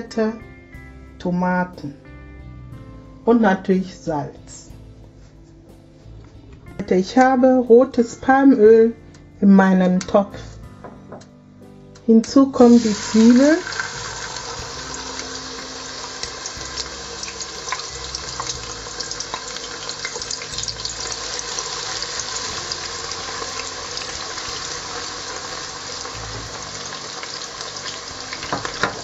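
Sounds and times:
onions sizzling in oil: 12.6 - 29.0.

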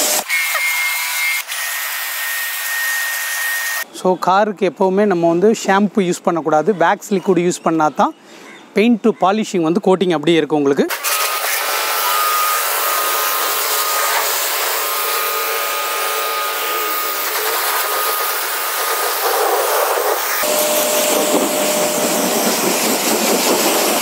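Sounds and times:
pressure washer water jet hissing: 10.9 - 24.0.

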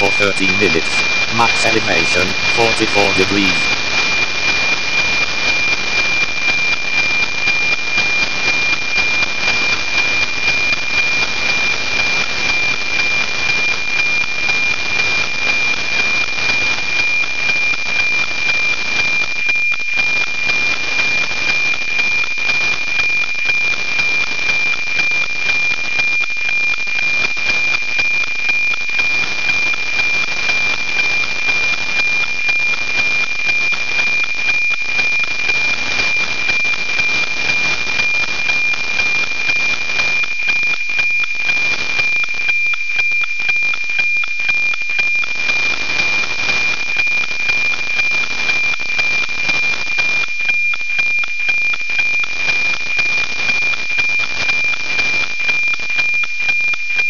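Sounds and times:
steady high tone: 0.0 - 3.8
radio hiss: 0.0 - 4.0.

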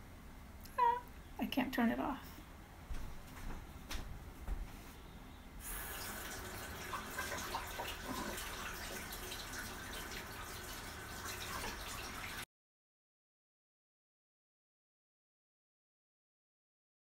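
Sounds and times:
hands washed under water: 5.6 - 12.4
tap water running into sink: 5.6 - 12.4.

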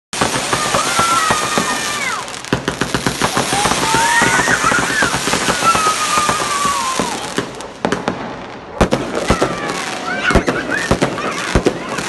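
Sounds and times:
fireworks crackling and banging: 0.1 - 12.0
firework whistle sliding down: 3.3 - 7.4.

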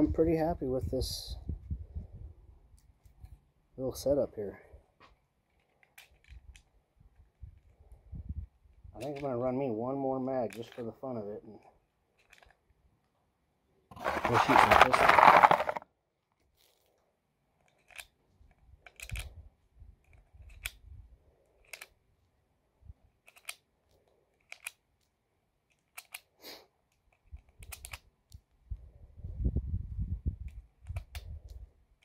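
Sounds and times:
cartridges clicking into magazine: 23.2 - 23.7, 24.4 - 24.8.

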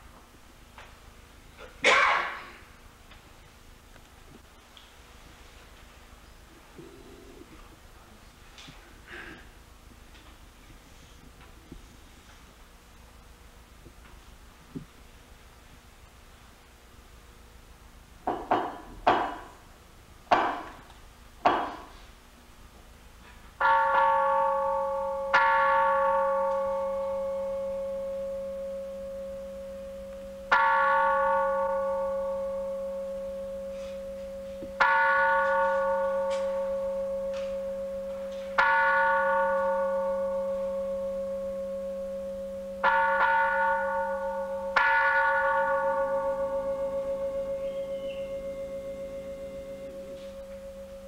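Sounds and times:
steady hum: 0.0 - 51.0
ceremonial bell ringing: 23.6 - 51.0.

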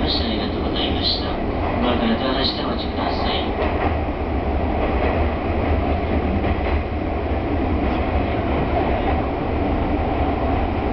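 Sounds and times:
train wheels rumbling on rails: 0.0 - 10.9.

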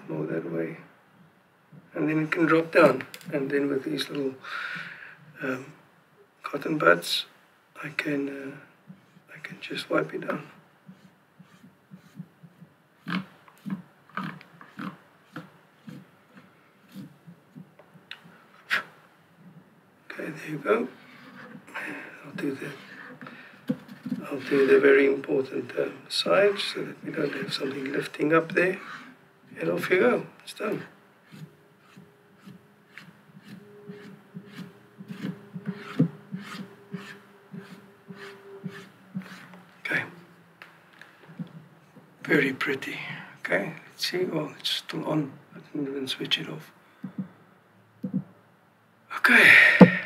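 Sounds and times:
rubbing strokes on plastic: 8.9 - 9.3, 10.3 - 19.6, 22.7 - 24.9, 30.6 - 39.8
cotton bud scrubbing on plastic: 10.9 - 17.7, 31.2 - 39.6
soft taps on plastic: 48.0 - 48.3.

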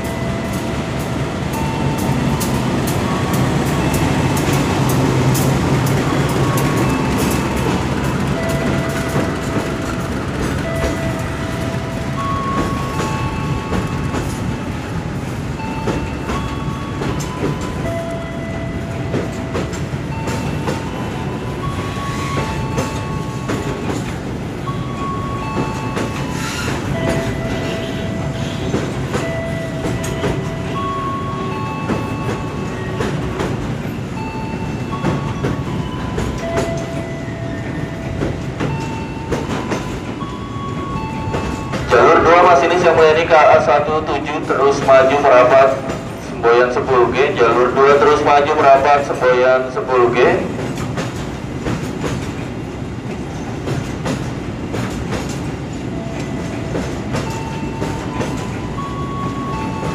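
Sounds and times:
freight train wagons rumbling: 0.0 - 59.9
train wheels squealing: 24.8 - 33.2.

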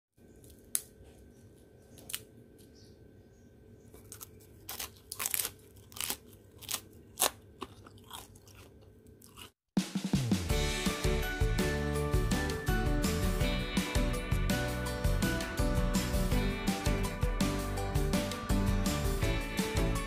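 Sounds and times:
crisp pancake shells crunching: 4.0 - 9.6
music: 9.8 - 20.0.

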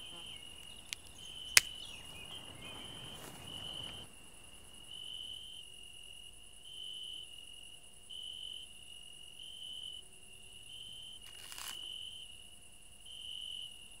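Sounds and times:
insects trilling: 0.0 - 14.0
camera shutter click: 11.3 - 11.9.

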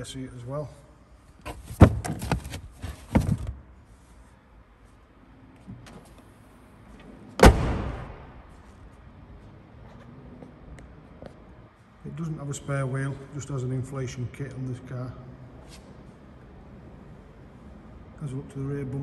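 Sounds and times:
knocks and rustles of trim: 1.4 - 3.7
car tailgate slamming: 7.4 - 8.4.

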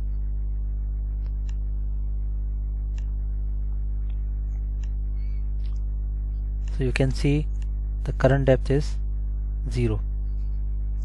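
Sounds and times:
electrical mains hum: 0.0 - 11.0
faint mouse clicks: 1.2 - 1.6, 2.9 - 3.1.

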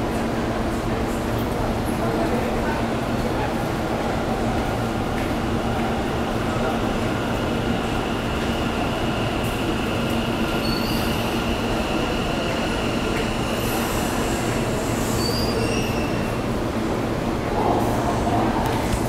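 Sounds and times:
train wheels rumbling on rail: 0.0 - 19.0
high wheel squeal: 10.6 - 11.3, 13.5 - 16.3.

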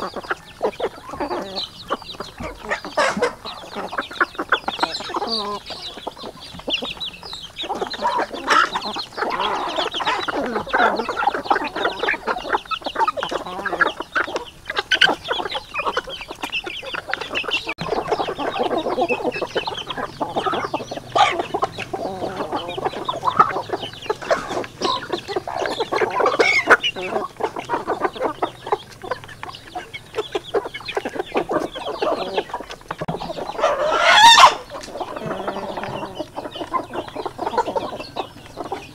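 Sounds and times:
chickens clucking: 0.0 - 38.9
chickens pecking taps: 0.0 - 38.9
loud rising chicken call: 33.6 - 36.2.

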